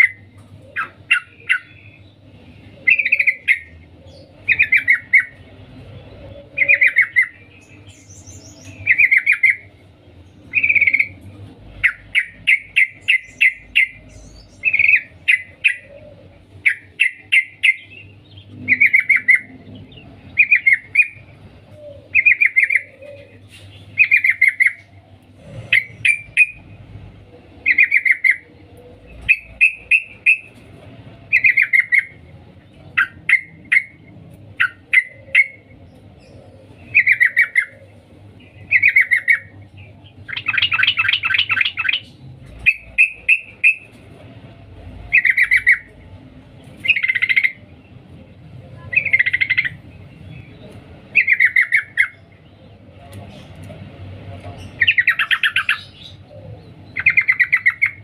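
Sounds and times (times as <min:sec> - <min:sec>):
bird rapid chattering: 0:00.0 - 0:02.0, 0:22.1 - 0:26.7, 0:27.6 - 0:28.4, 0:29.1 - 0:30.6, 0:38.5 - 0:44.0, 0:45.1 - 0:46.0, 0:48.9 - 0:52.4, 0:54.4 - 0:58.0
bird calling cuk cuk: 0:00.0 - 0:58.0.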